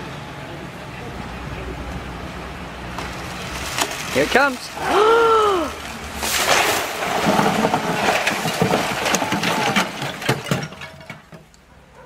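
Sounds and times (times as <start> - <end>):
fronds rustling: 2.6 - 10.0
sharp cracks and knocks: 2.9 - 4.7, 6.2 - 11.6
tree crashing onto tiled roof: 3.0 - 11.5
person crying out: 4.8 - 5.8.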